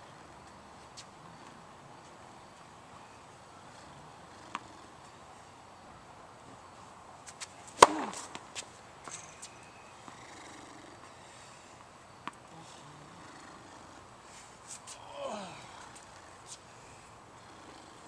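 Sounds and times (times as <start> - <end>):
racket hitting tennis ball: 7.3 - 10.2.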